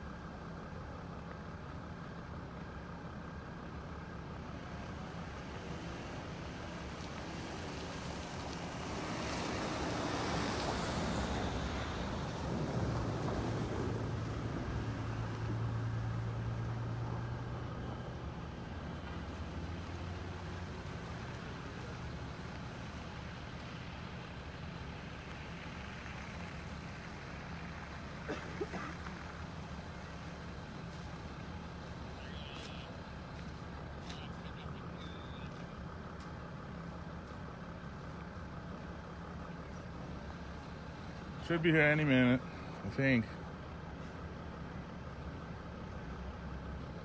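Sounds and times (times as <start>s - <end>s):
background traffic noise: 0.0s - 47.0s
vehicle driving past on snow: 3.5s - 47.0s.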